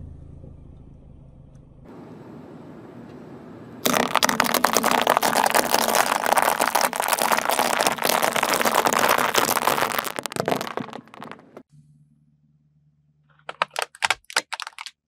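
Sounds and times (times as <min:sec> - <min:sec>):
dry pasta crunching under tyre: 0:03.8 - 0:11.6, 0:13.5 - 0:15.0.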